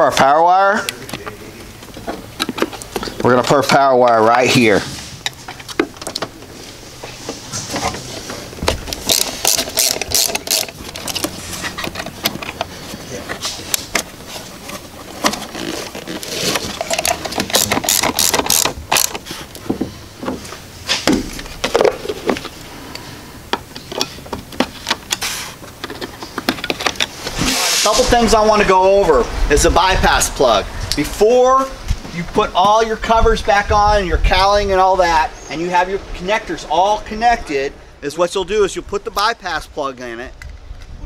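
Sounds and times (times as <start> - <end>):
tools and plastic parts rattling: 7.5 - 22.6, 23.5 - 27.4
ratchet clicking: 8.9 - 12.6, 16.8 - 19.2.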